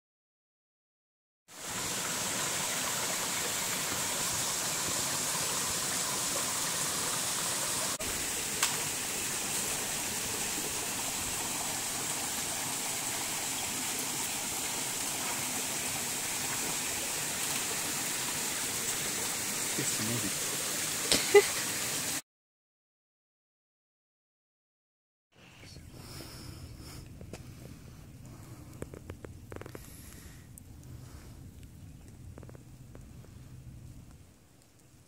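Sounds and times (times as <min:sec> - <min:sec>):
stream rushing over rocks: 0:01.5 - 0:22.2.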